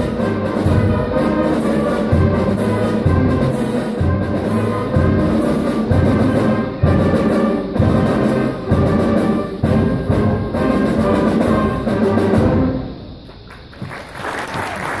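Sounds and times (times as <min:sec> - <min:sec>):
concert band playing: 0:00.0 - 0:13.3
audience applauding: 0:13.2 - 0:15.0.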